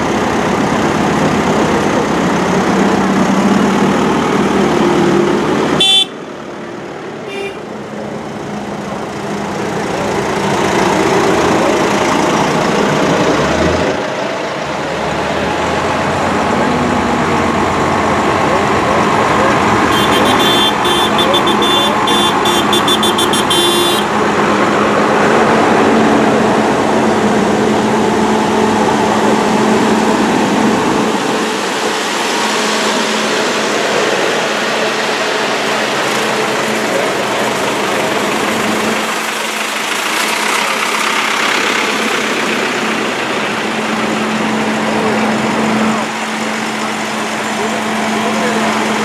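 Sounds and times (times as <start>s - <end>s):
tractor diesel engines: 0.0s - 49.0s
high-pitched pattern: 20.0s - 24.0s.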